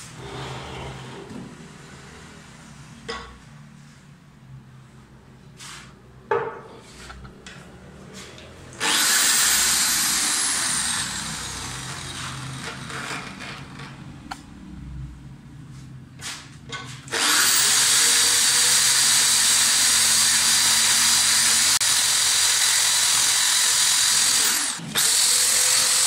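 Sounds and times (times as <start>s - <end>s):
electric drill motor whining: 8.8s - 13.8s, 17.1s - 26.0s.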